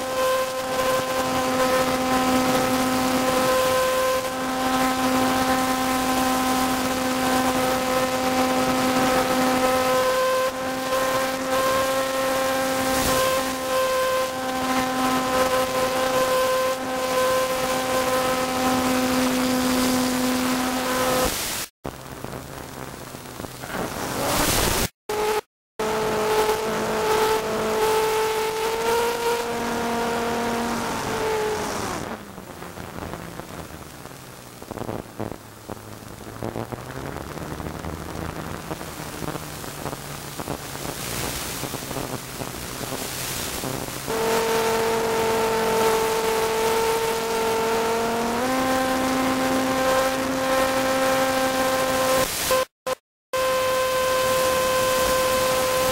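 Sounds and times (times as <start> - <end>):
aircraft engine drone: 0.0 - 50.4, 53.4 - 55.9.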